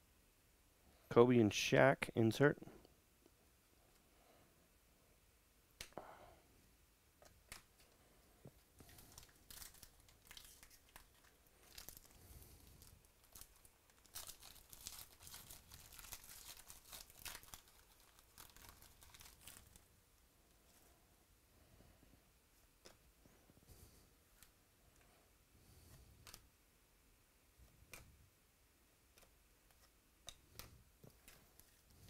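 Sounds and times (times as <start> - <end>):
foil wrappers crinkling: 8.8 - 19.9, 31.2 - 32.0.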